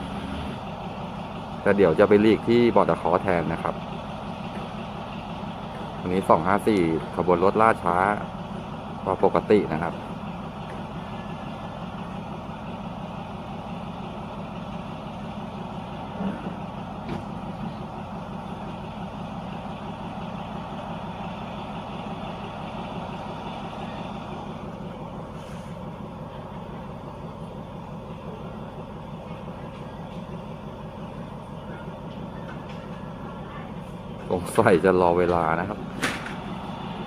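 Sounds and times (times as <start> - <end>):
diesel train engine idling: 0.0 - 37.0.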